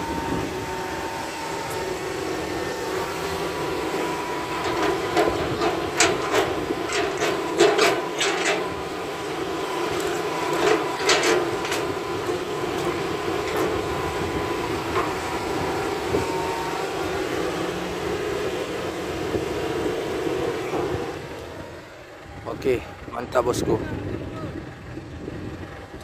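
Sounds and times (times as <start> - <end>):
thin steady whine: 0.0 - 23.7
excavator diesel engine running: 0.0 - 26.0
bucket clanking and scraping: 3.6 - 15.4.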